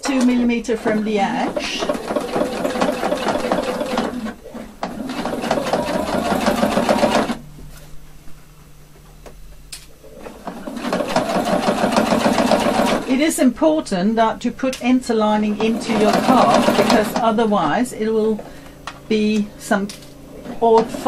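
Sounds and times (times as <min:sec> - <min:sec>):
sewing machine stitching fast: 0:00.0 - 0:07.4, 0:10.4 - 0:13.2, 0:15.5 - 0:17.4.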